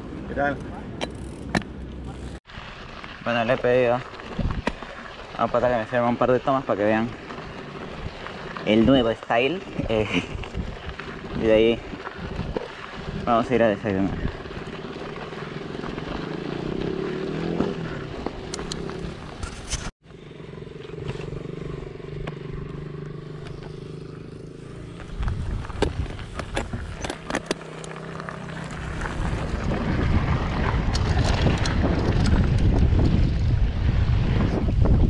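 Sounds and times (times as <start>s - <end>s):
wind buffeting microphone: 4.3s - 4.8s, 7.9s - 14.8s, 25.0s - 27.2s, 28.8s - 35.0s
bike knocks and rattles: 23.0s - 28.0s.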